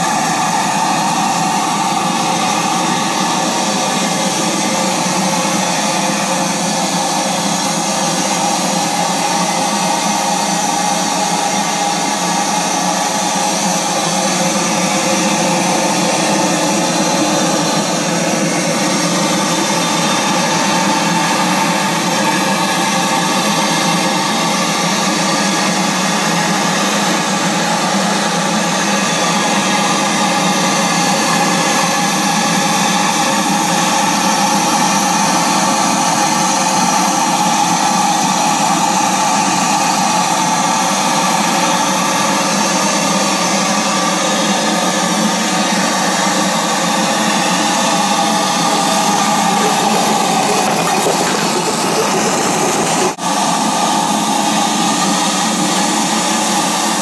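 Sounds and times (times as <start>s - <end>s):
steam engine hiss and whir: 48.2s - 53.2s.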